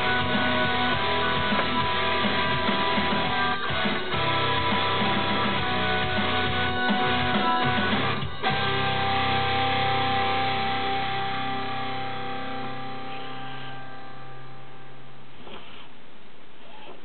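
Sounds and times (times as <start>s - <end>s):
rock song with strummed guitar: 0.0s - 13.2s
guitar chord ringing: 0.0s - 15.2s.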